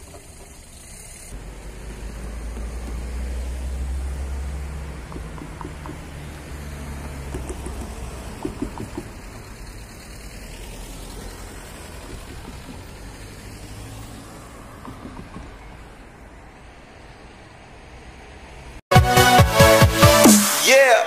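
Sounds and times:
cars passing: 0.0 - 18.9
sharp knocks: 4.9 - 6.3, 7.0 - 9.4, 14.8 - 15.7.

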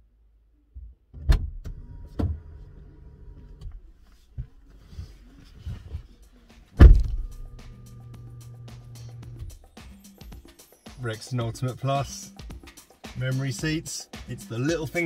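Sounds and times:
car door opening: 1.1 - 4.7, 6.7 - 8.3
car door shutting with thud: 6.8 - 7.5
power seat motor humming: 6.8 - 9.6.

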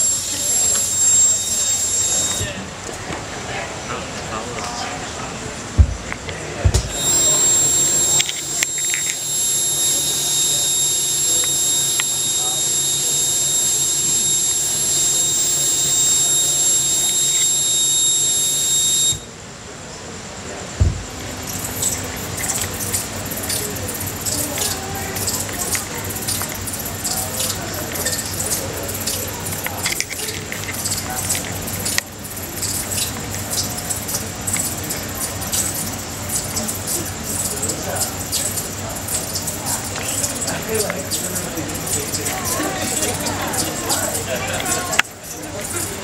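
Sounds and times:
harsh electronic noise: 6.9 - 19.3.

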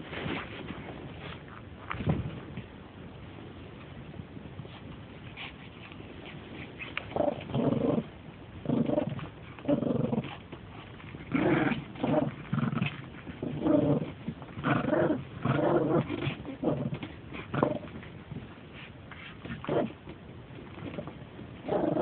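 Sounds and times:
dog growling in play: 6.4 - 18.4, 19.3 - 20.0, 20.6 - 22.0.

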